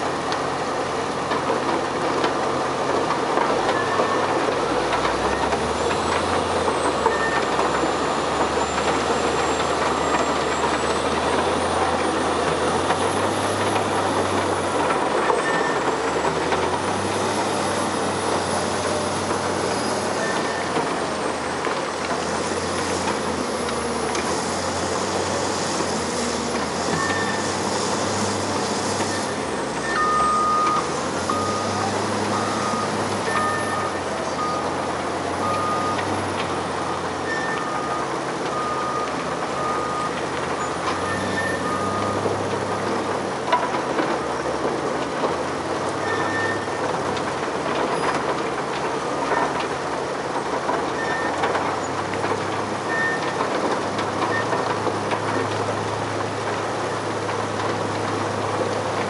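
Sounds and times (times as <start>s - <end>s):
diesel machinery running: 0.0s - 59.0s
high reversing beep: 26.9s - 27.6s, 29.1s - 34.8s, 35.4s - 36.1s, 37.2s - 40.2s, 41.0s - 42.2s, 46.0s - 46.8s
low fast reversing beeps: 26.9s - 27.6s, 29.0s - 34.8s, 35.4s - 36.1s, 37.2s - 40.2s.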